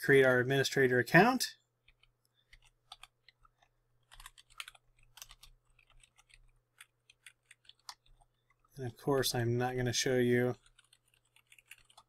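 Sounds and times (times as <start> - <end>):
keyboard typing: 1.8 - 8.8, 10.5 - 12.0.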